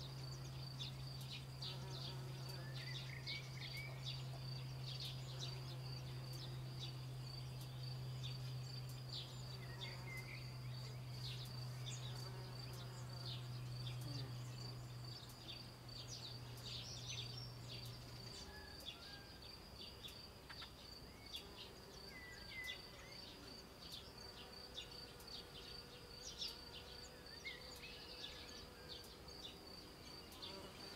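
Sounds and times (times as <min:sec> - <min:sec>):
low steady hum: 0:00.0 - 0:18.9.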